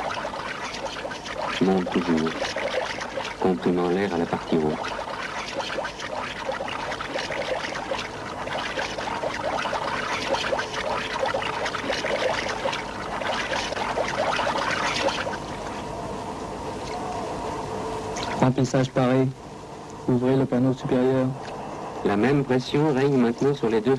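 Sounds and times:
water pouring and splashing: 0.0 - 15.8.

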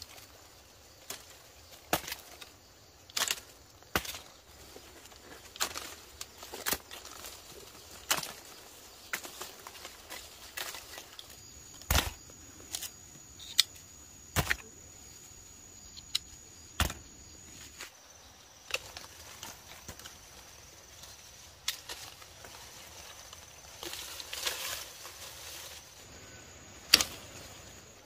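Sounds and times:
sharp clicks and snaps: 15.9 - 16.3.

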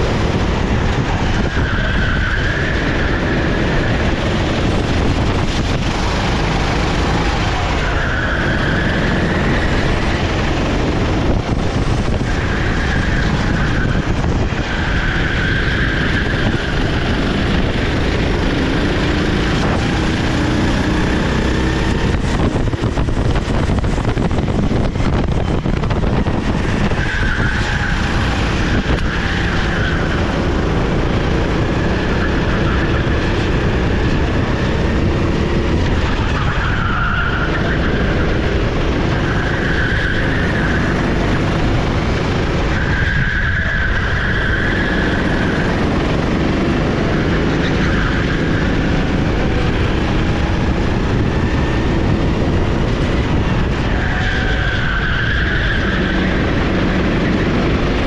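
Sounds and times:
kart engine running hard: 0.0 - 58.0
high squeal: 1.0 - 4.4.

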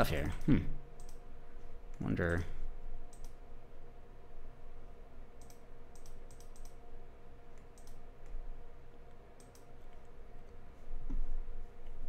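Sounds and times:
computer mouse and keys clicking: 0.0 - 1.2, 3.1 - 3.4, 5.4 - 6.8, 7.5 - 12.0
faint electrical hum: 0.0 - 12.0.

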